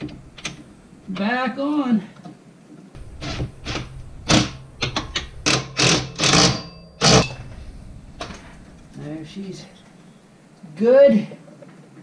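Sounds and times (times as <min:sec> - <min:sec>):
impact driver hammering: 0:03.3 - 0:07.4.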